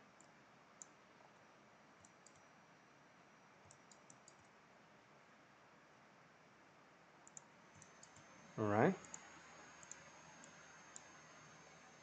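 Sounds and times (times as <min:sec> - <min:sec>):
faint room hiss: 0:00.0 - 0:12.0
mouse and keyboard clicks: 0:03.6 - 0:04.5, 0:07.2 - 0:08.3, 0:09.0 - 0:11.3.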